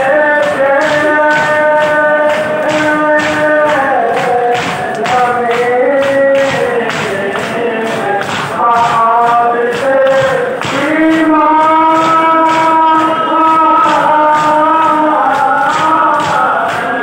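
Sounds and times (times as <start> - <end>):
men chanting a lament: 0.0 - 17.0
hands striking chests: 0.4 - 13.1.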